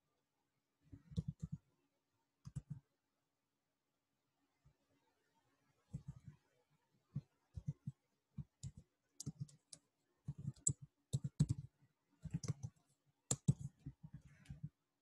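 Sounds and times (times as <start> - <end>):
computer keyboard typing: 8.4 - 11.7, 12.3 - 14.6.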